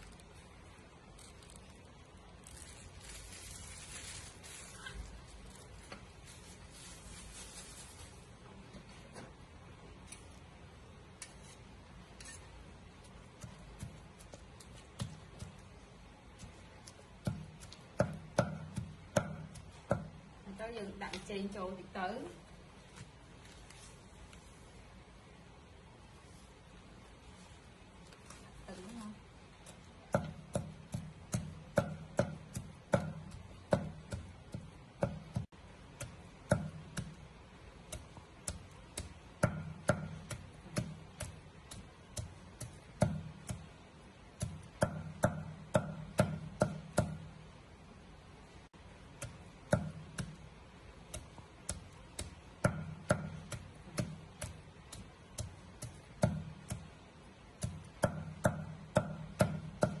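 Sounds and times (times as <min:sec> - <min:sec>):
cleaver chopping on wooden board: 0:30.1 - 0:37.2, 0:51.1 - 0:56.9, 0:57.6 - 1:00.0.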